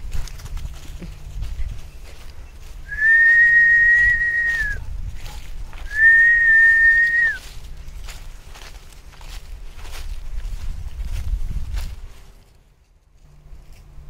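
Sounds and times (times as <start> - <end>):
high whistles: 2.9 - 4.8, 5.9 - 7.4.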